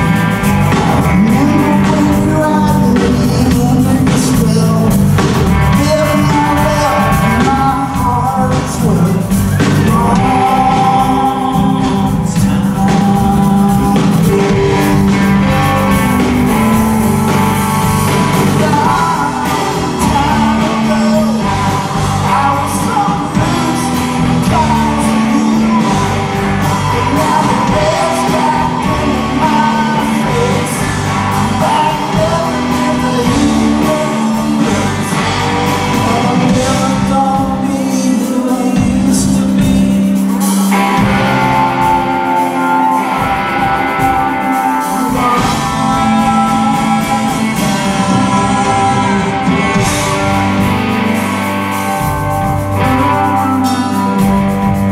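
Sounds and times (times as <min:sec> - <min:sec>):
rock band playing live: 0:00.0 - 0:54.9
singer's voice: 0:00.0 - 0:54.9.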